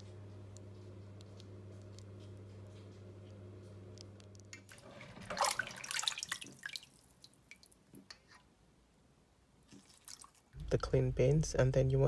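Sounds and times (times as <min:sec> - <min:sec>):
water splashing and dripping: 0:04.7 - 0:07.9, 0:09.7 - 0:10.6.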